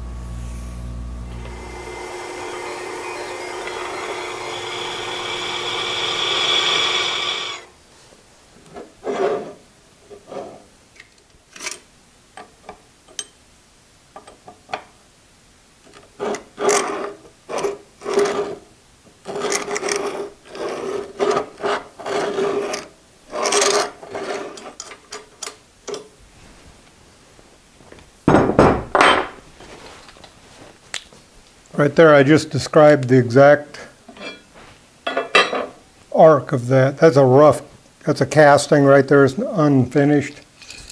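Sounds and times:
drill press boring steel: 0:01.3 - 0:07.7
heavy thump: 0:28.3 - 0:29.3.

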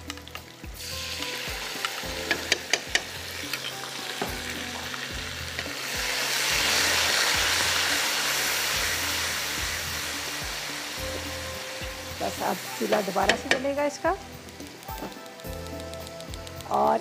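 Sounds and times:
food sizzling in hot oil: 0:00.0 - 0:17.0
sharp clicks: 0:14.4 - 0:16.8.

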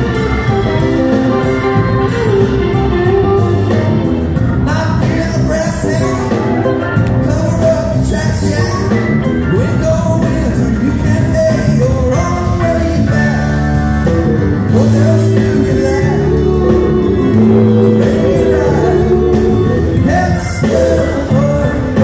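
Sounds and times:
bass: 0:00.0 - 0:22.0
drums: 0:00.0 - 0:22.0
electric guitar: 0:00.0 - 0:22.0
organ: 0:00.0 - 0:22.0
voices singing: 0:14.7 - 0:22.0.

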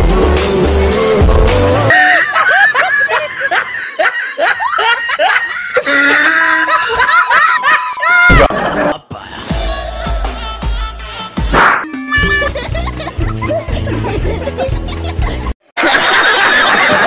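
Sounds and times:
high-pitched laughter: 0:01.9 - 0:10.4, 0:12.1 - 0:17.0
steady high tone: 0:11.5 - 0:12.6.

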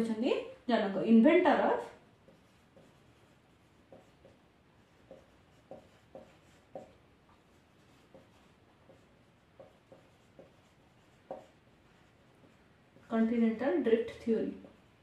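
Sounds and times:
marker squeaking on whiteboard: 0:02.3 - 0:13.1.

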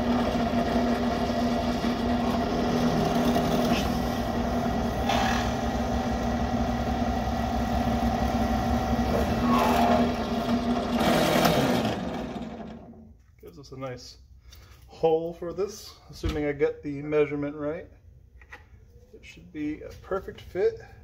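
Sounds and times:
drill press motor hum: 0:00.0 - 0:13.1.

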